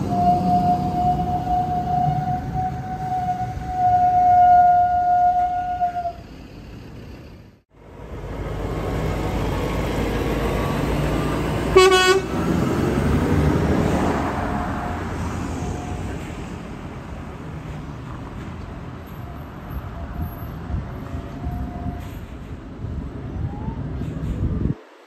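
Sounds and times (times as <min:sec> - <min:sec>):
truck horn toot: 0:00.0 - 0:06.2, 0:11.7 - 0:12.4
truck diesel engine passing: 0:00.0 - 0:25.0.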